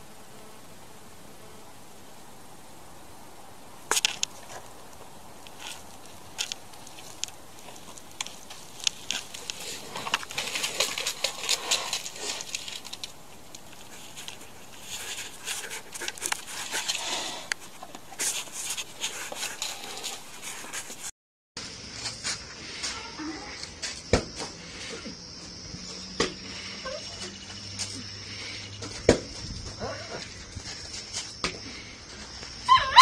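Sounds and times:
rustling in dry leaves and twigs: 2.2 - 33.0
twigs snapping: 3.9 - 16.9.

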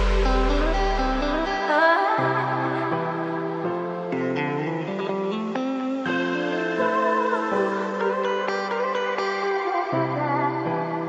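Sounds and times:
held low note: 0.0 - 1.6
plucked notes: 0.0 - 2.2.

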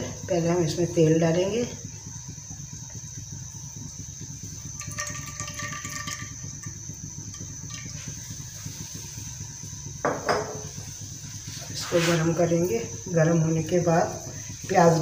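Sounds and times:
steady low hum: 0.0 - 15.0
oil pouring into a pan: 2.0 - 11.8.

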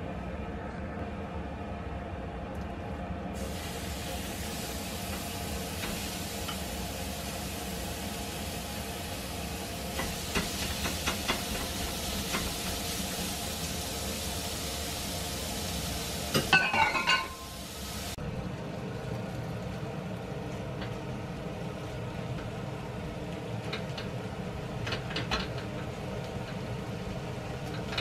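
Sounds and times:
meat sizzling in a pan: 3.4 - 18.2.

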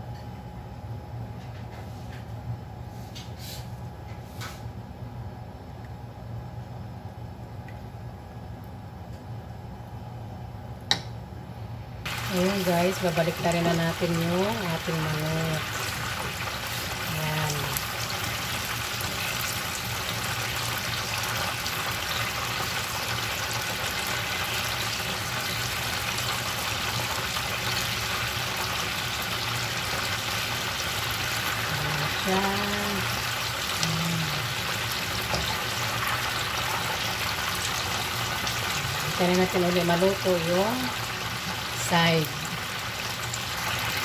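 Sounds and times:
chicken deep-frying in oil: 12.0 - 44.0.

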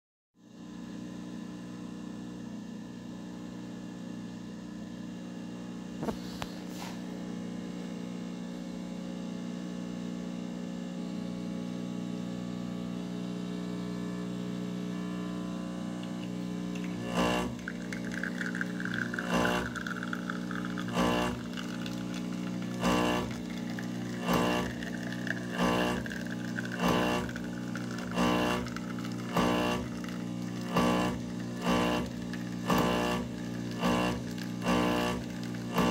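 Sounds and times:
espresso machine pump humming: 6.0 - 7.0, 13.4 - 35.9.

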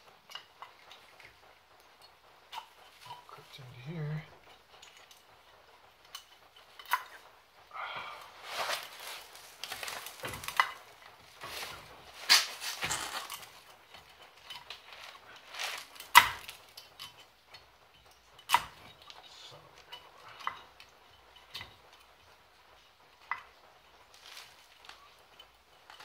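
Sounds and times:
scraping and rustling: 8.2 - 17.3, 24.0 - 26.0.

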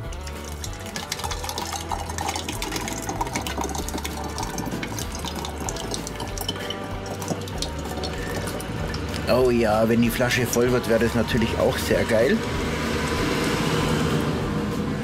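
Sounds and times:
thick sauce pouring into bottle: 0.0 - 9.9.

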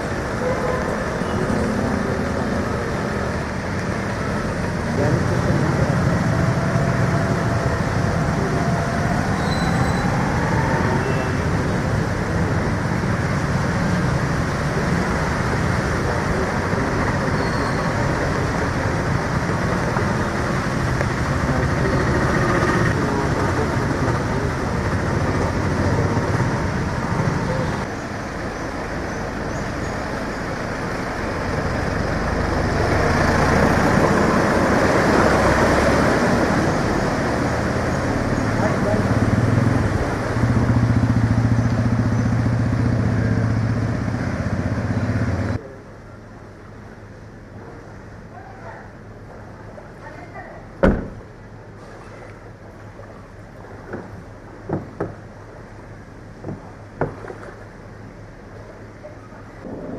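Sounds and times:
motorcycle and car engines: 0.0 - 45.8.

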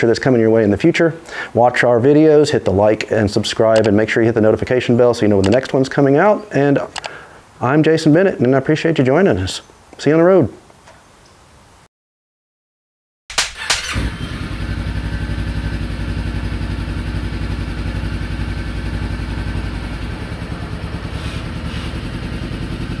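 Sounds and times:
sharp clicks: 3.7 - 4.0, 6.9 - 7.2
motorcycle engine idling: 13.7 - 23.0.

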